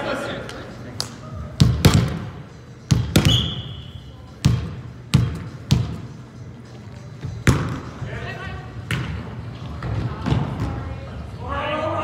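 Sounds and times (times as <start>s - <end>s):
volleyball smacks echoing in gym: 1.0s - 3.7s, 4.4s - 6.0s, 7.4s - 7.9s.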